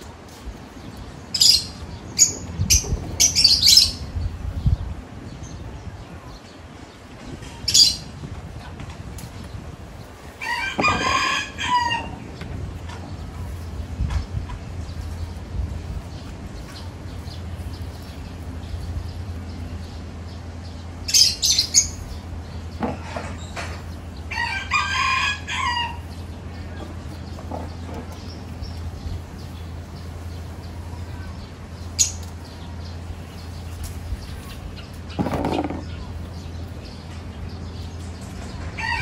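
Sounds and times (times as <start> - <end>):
steady low hum: 0.0 - 38.8
rooster crowing: 10.4 - 12.2, 24.2 - 26.2, 38.8 - 39.0.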